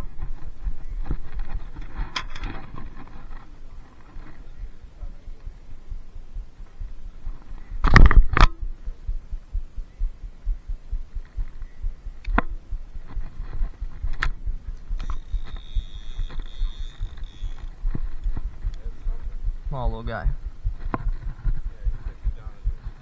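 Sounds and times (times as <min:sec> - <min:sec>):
steady high whine: 0:00.0 - 0:23.0
low thumps: 0:05.3 - 0:23.0
sharp clicks: 0:11.2 - 0:12.6, 0:14.0 - 0:18.9
fabric rubbing on camera: 0:12.9 - 0:23.0.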